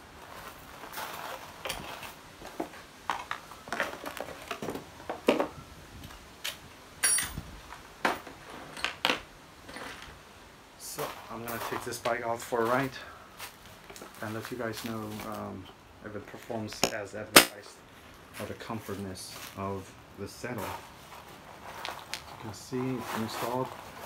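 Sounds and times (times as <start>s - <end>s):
metallic clinks and clacks: 7.0s - 7.4s.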